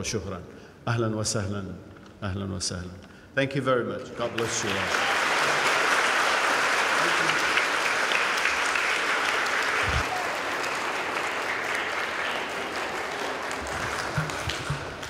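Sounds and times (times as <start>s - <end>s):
audience applauding: 4.2s - 15.0s.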